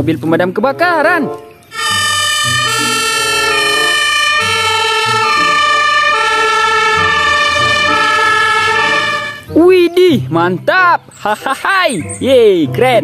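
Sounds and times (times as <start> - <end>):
two-tone fire engine siren: 1.7 - 9.5.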